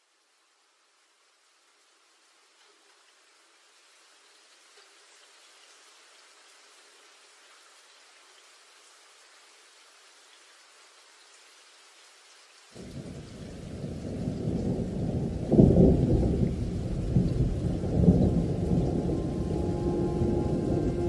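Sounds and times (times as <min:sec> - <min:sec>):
deep thunder-like rumble: 0:13.8 - 0:21.0.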